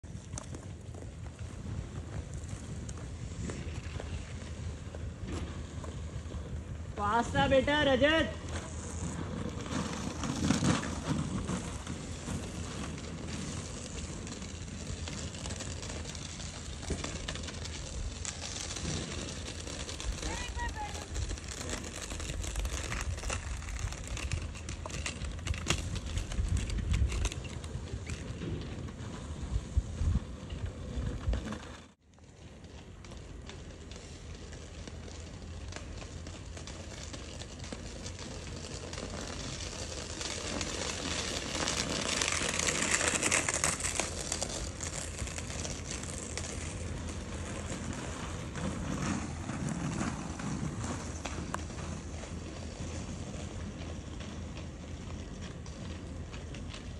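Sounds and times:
skate wheels rolling on asphalt: 0.0s - 56.9s
wind on microphone: 29.4s - 31.5s.

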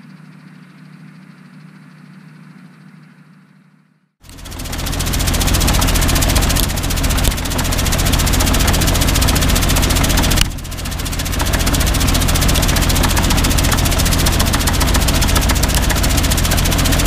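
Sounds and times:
granules ticking on housing: 4.2s - 17.0s
tractor engine running: 4.2s - 17.0s.

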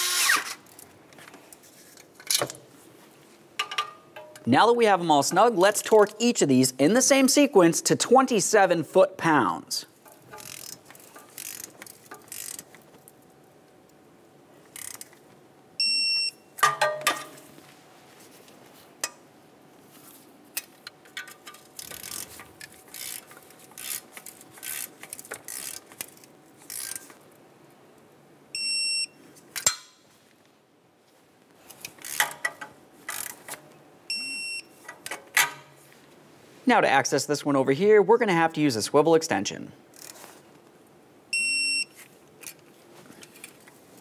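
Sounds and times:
torque wrench ratcheting clicks: 10.3s - 12.7s, 14.8s - 15.1s, 21.8s - 27.1s, 32.0s - 33.4s
electronic beep: 41.4s - 41.9s.

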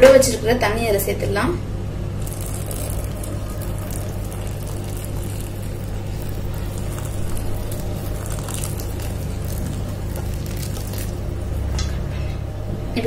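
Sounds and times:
steady low hum: 0.0s - 13.0s
water pouring into bowl: 2.2s - 11.7s.

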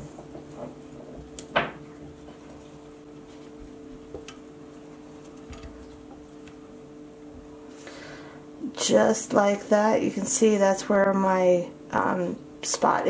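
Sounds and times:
hands rubbing cord: 0.0s - 6.6s
steady low hum: 0.0s - 13.0s.

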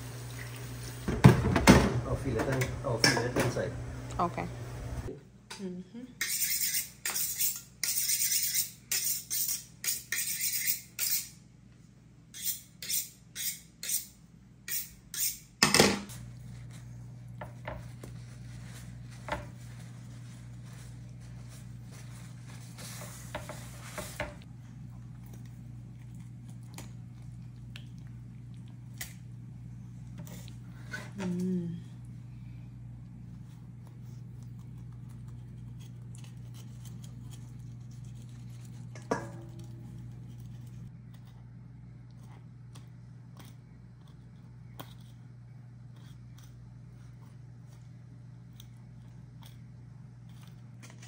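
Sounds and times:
metallic scraping strokes: 6.2s - 11.3s
steady low hum: 13.1s - 51.0s.

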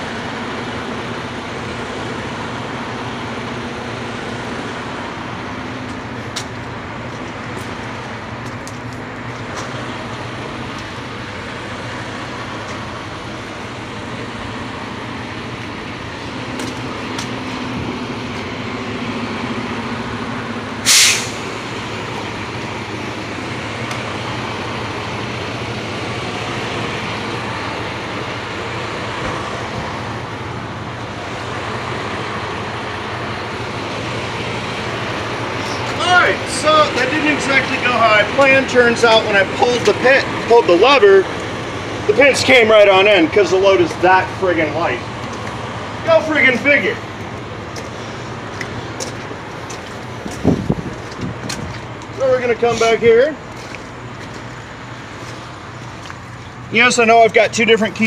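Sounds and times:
diesel engine idling: 0.0s - 58.0s
burst of escaping air: 20.8s - 21.5s.

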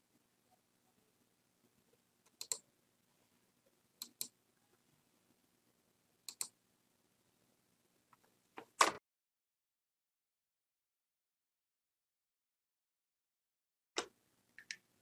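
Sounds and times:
computer mouse clicks: 2.3s - 2.6s, 4.0s - 4.4s, 6.3s - 6.6s, 14.0s - 14.8s.

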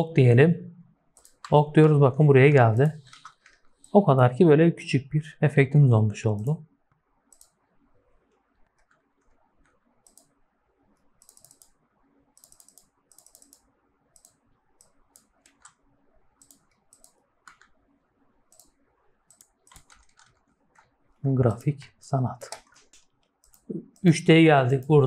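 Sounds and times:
mouse and keyboard clicks: 1.2s - 1.5s, 3.0s - 4.0s, 7.3s - 7.6s, 8.6s - 10.4s, 11.2s - 11.8s, 12.4s - 15.8s, 16.4s - 17.8s, 18.5s - 20.9s, 21.5s - 24.1s.

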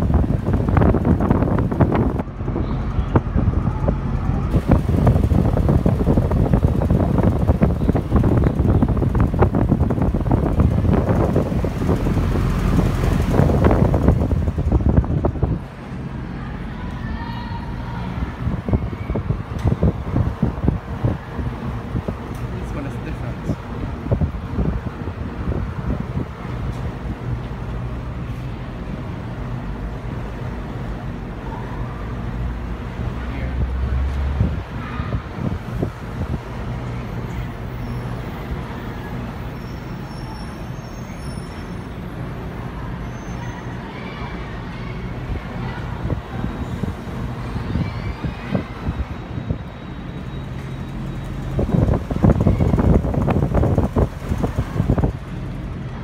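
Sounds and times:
air rushing through grille: 0.0s - 16.1s, 50.9s - 56.0s
wind buffeting microphone: 0.0s - 16.1s, 17.6s - 28.0s, 33.1s - 38.8s, 45.0s - 49.8s, 51.3s - 56.0s
exhaust fan rushing air: 0.0s - 56.0s.

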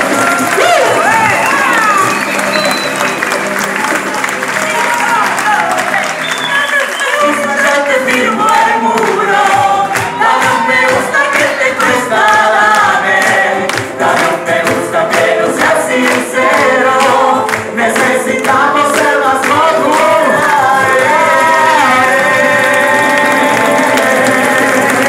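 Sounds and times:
voices singing together: 7.0s - 25.0s.

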